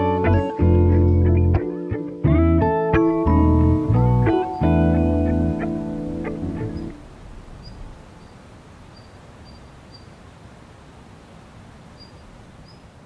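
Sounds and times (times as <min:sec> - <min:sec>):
bird chirping: 0:00.0 - 0:02.1, 0:03.0 - 0:10.2, 0:11.9 - 0:13.0
music: 0:00.0 - 0:07.0
soft steady hiss: 0:00.0 - 0:13.0.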